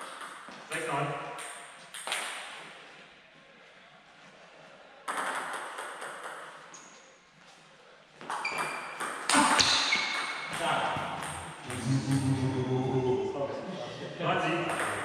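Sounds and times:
table tennis ball hits: 1.3s - 2.6s, 5.1s - 6.7s, 8.2s - 12.2s, 14.6s - 15.0s.

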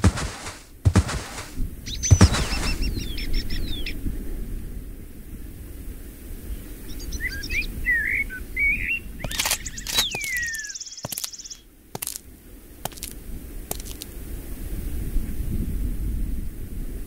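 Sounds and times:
sharp clicks: 0.0s - 2.9s, 9.2s - 12.2s, 12.9s - 14.1s
low wind-like rumble: 0.0s - 10.6s, 11.6s - 17.0s
bird twittering chirps: 1.9s - 4.0s, 6.9s - 11.6s.

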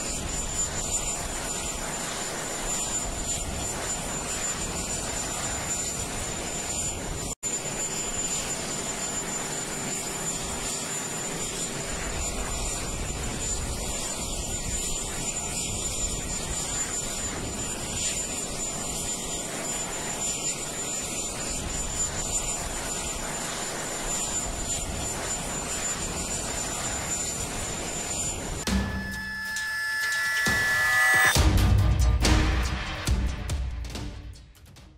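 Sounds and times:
jet engine noise: 0.0s - 31.4s
high whine: 24.3s - 31.6s.

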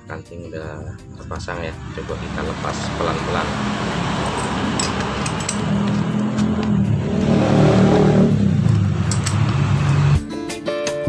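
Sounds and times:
guitar music: 1.2s - 10.4s
engine running and revving: 1.6s - 10.2s.

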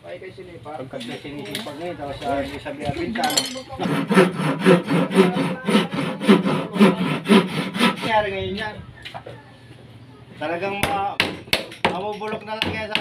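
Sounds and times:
hand saw cutting wood: 3.8s - 8.2s.

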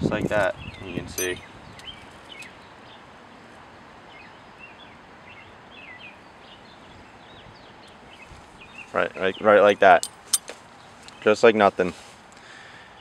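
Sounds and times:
wind noise: 0.0s - 1.8s.

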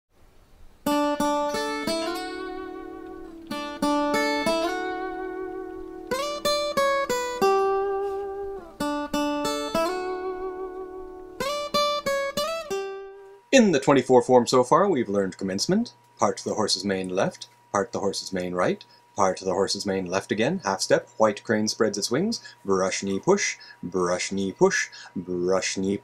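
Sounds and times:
plucked string instrument runs: 0.8s - 13.7s.

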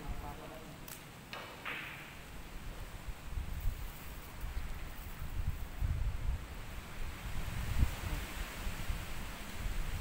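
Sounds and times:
faint steady hiss: 0.0s - 10.0s
wind buffeting microphone: 2.1s - 10.0s.

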